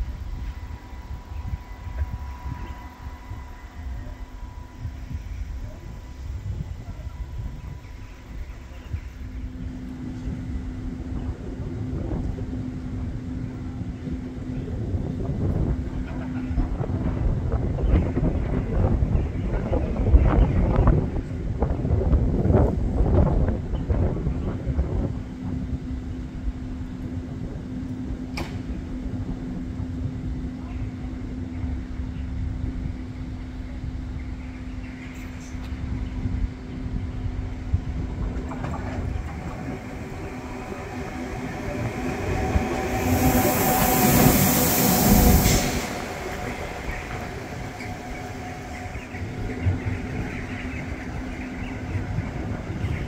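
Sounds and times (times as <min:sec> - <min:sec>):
locomotive running hum: 0:00.0 - 0:53.0.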